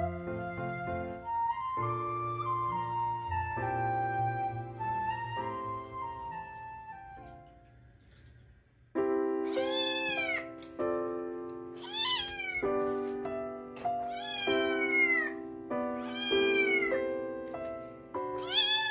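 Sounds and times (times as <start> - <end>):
kitten meowing: 9.5 - 10.6, 11.8 - 12.7, 14.0 - 15.4, 16.0 - 17.0, 18.4 - 18.9.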